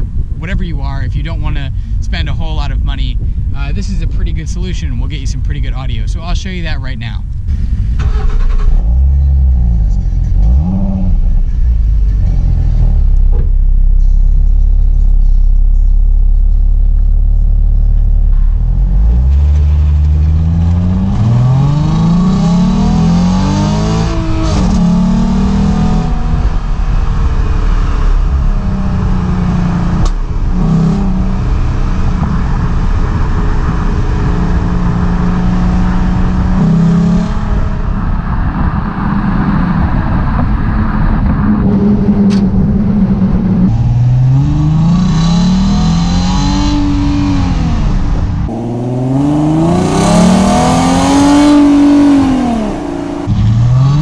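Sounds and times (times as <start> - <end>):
wind noise: 0.0 - 15.8, 18.0 - 54.0
car exhaust while driving: 0.0 - 54.0
engine revving: 8.0 - 14.8, 17.7 - 37.8, 41.5 - 54.0.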